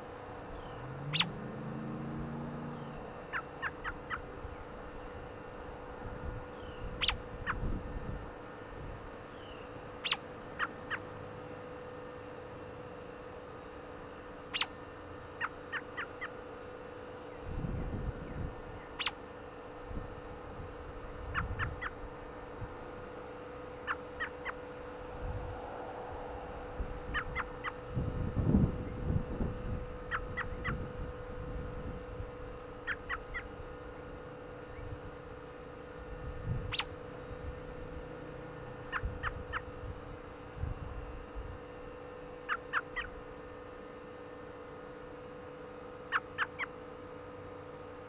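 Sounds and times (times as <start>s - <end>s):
bird chirping: 0.5s - 1.4s, 6.6s - 7.6s, 9.3s - 11.0s, 14.5s - 14.7s, 18.3s - 19.2s, 36.7s - 36.9s
wind rumbling on microphone: 6.0s - 9.1s, 17.4s - 18.8s, 19.9s - 21.9s, 25.2s - 32.4s, 36.1s - 38.0s.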